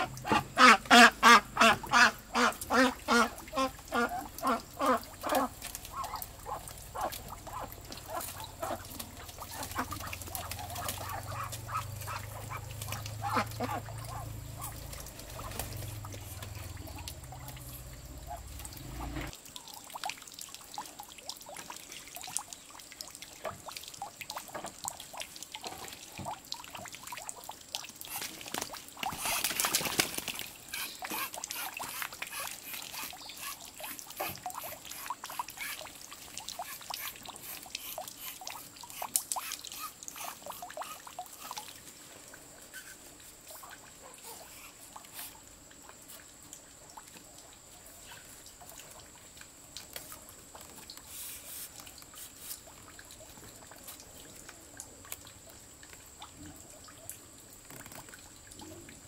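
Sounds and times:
duck calling loudly: 0.0 - 8.9, 9.5 - 15.6
faint duck calls: 0.0 - 19.3, 30.7 - 35.8
birds scuffling: 3.5 - 19.3, 28.1 - 32.8.

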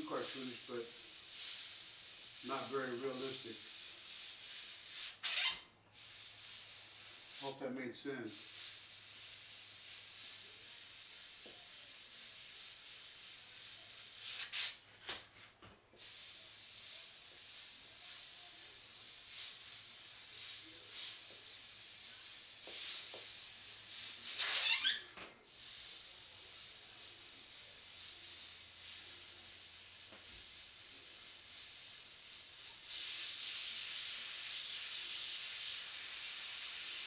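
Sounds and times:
airbrush hissing: 0.0 - 14.8, 16.0 - 37.0.

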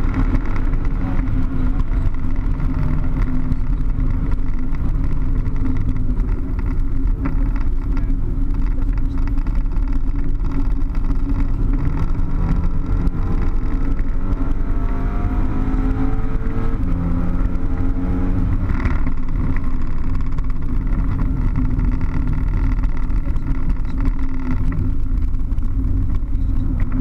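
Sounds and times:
car engine from inside cabin: 0.0 - 27.0
road and wind noise: 0.0 - 27.0.

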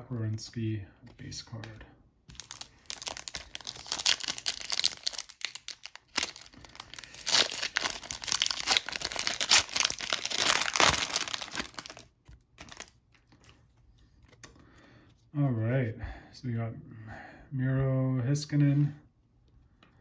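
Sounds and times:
foil wrapper tearing and crinkling: 2.3 - 13.0.

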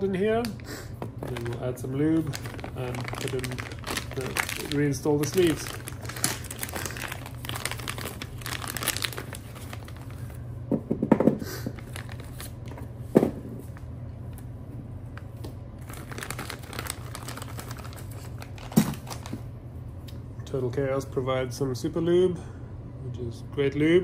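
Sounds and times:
plastic bag crinkling: 1.1 - 10.4, 11.7 - 12.7, 15.8 - 19.4
objects knocking on table: 10.7 - 11.4.

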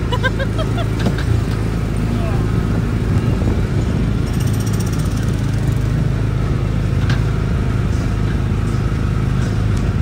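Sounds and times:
small gasoline engine running: 4.2 - 6.0.

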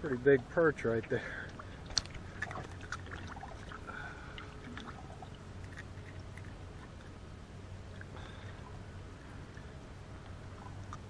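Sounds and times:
light water sounds: 0.0 - 11.0
low steady hum: 0.0 - 11.0
small clicks and rustles: 1.5 - 3.8.

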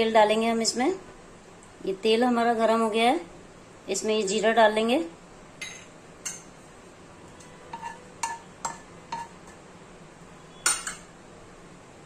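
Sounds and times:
spoon clinking on metal dishes: 5.6 - 6.5, 7.4 - 9.6, 10.5 - 11.1.

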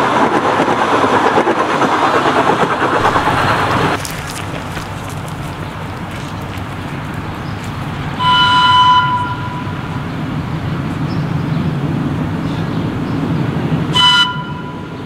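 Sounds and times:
train rumbling: 0.0 - 15.0
locomotive horn: 8.2 - 9.9, 13.9 - 15.0.

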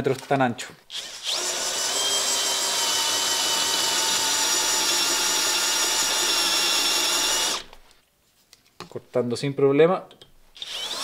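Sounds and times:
cordless drill drilling through steel: 0.9 - 7.8, 10.6 - 11.0.

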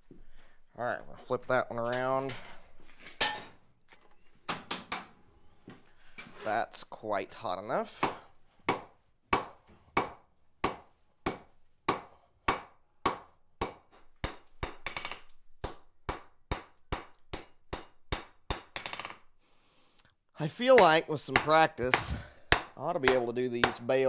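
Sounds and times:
hammer striking steel on anvil: 8.0 - 19.2, 20.8 - 23.8.

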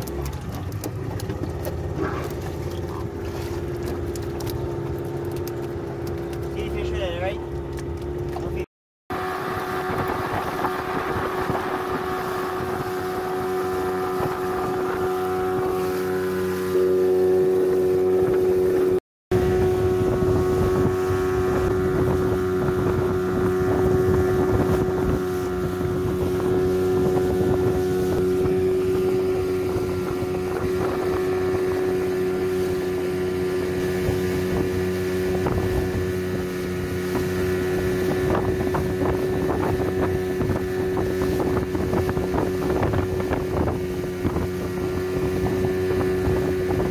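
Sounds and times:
engine drone: 0.0 - 46.9
wind noise on microphone: 9.1 - 15.9, 18.2 - 46.9.

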